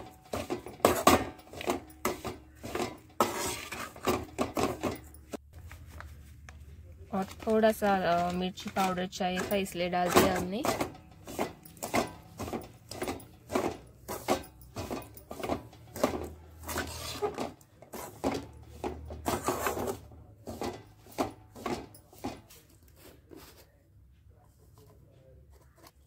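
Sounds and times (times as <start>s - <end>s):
spatula scraping spices in metal pan: 0.0s - 4.7s.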